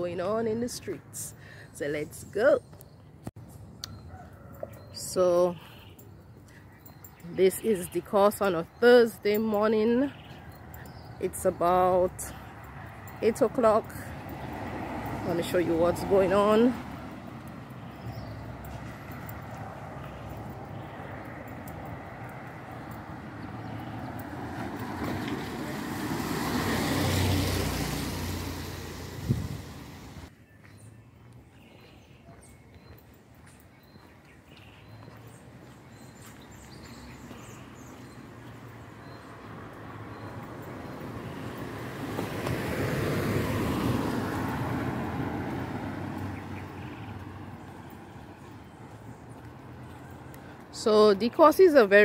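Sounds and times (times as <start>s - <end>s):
vehicle engine hum: 10.1s - 30.3s, 34.7s - 51.3s
car passing by: 13.9s - 30.3s, 38.6s - 50.8s
tyres hissing on wet road: 25.8s - 30.3s.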